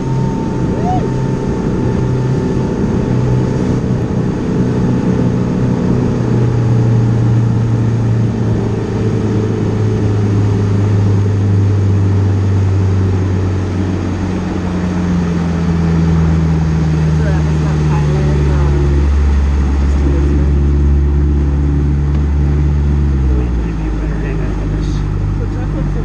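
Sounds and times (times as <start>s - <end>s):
higher tone: 0.0s - 4.1s
outboard motor hum: 0.0s - 26.0s
rushing water noise: 0.0s - 26.0s.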